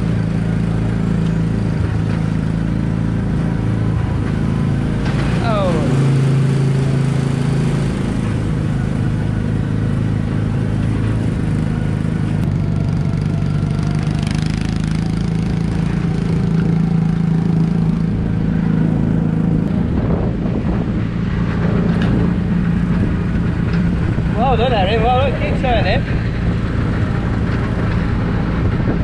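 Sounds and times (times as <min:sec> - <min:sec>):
small gasoline engine running: 0:00.0 - 0:29.0.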